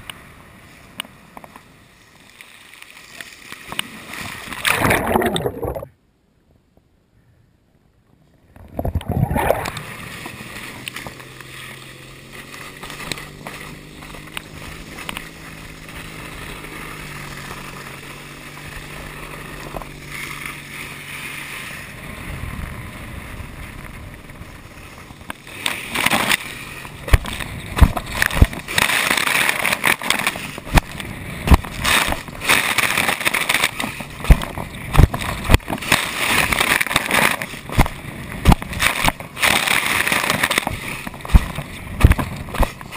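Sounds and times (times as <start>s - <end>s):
water rushing: 4.3s - 5.9s, 8.6s - 11.0s.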